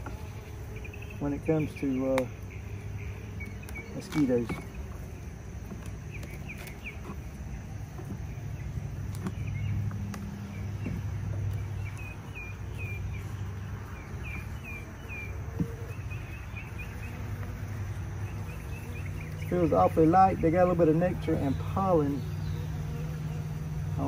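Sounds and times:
honey bees humming: 0.0s - 24.0s
small birds chirping: 0.0s - 24.0s
hive tool clicks: 3.4s - 5.0s, 5.6s - 7.2s.

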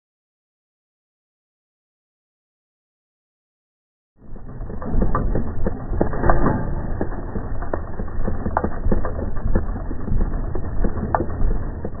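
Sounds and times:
low motor rumble: 4.2s - 12.0s.

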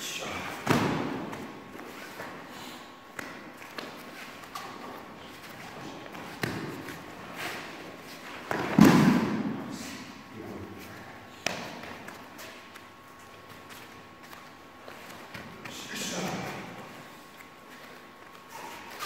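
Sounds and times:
bodies thudding on foam mats: 0.6s - 1.6s, 8.4s - 9.6s.

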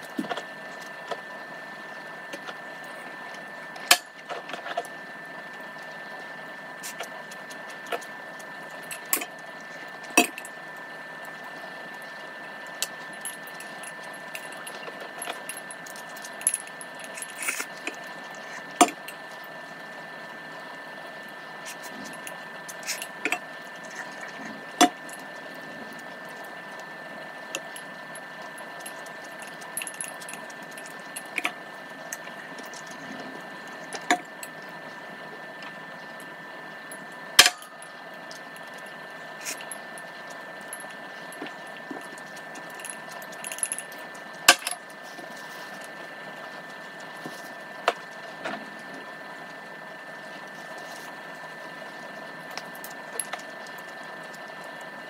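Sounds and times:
background hum: 0.0s - 55.0s.

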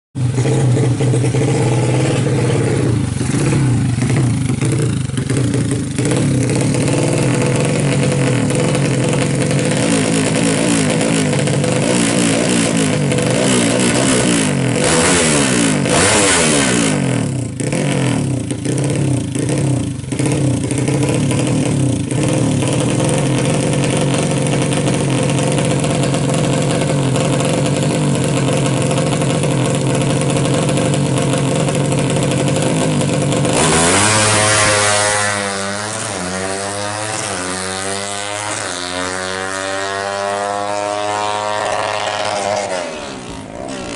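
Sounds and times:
motorcycle engine revving: 0.2s - 43.9s.

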